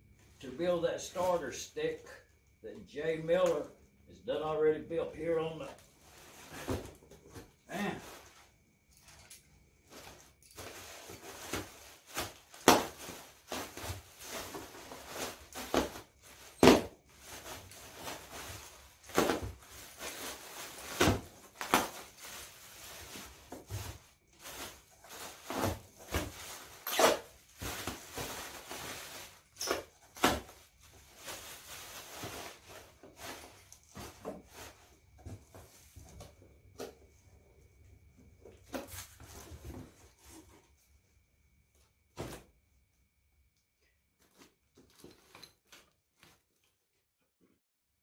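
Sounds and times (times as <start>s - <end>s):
plastic wrapping crinkling: 9.9s - 34.8s.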